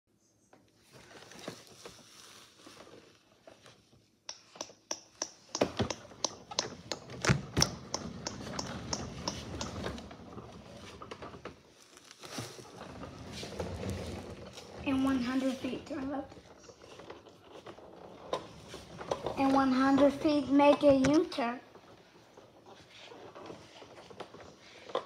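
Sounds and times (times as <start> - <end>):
faint rustling: 8.1 - 25.0.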